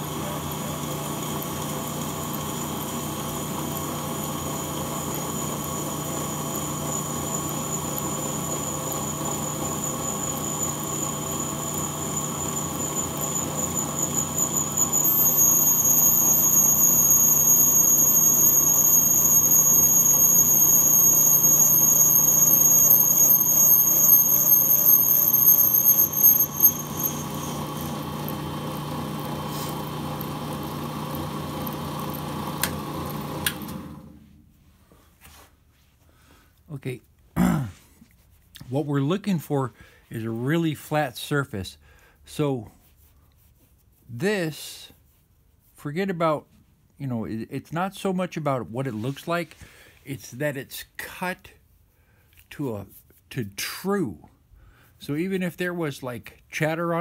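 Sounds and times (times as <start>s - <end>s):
brake lathe humming: 0.0s - 34.0s
cutter high-pitched squeal: 8.6s - 28.4s.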